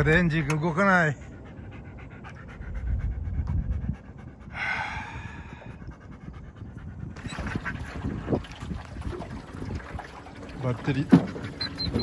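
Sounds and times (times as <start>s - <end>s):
dog panting: 0.8s - 4.6s, 5.2s - 7.8s.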